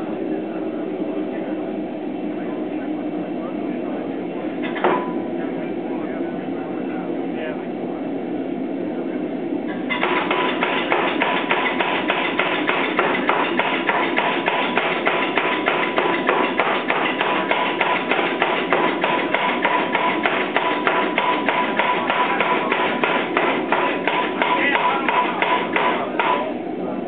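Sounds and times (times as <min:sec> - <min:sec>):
power hammer striking metal: 0:09.9 - 0:26.5.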